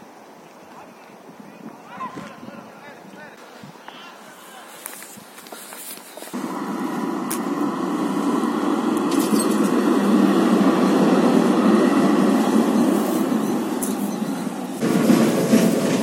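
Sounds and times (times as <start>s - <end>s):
tram wheels rolling on rails: 4.8s - 16.0s.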